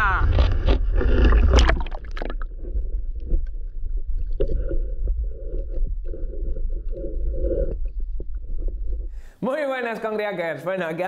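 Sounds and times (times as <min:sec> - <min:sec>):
muffled underwater rumble: 0:00.0 - 0:09.2
water splashing: 0:00.3 - 0:05.2.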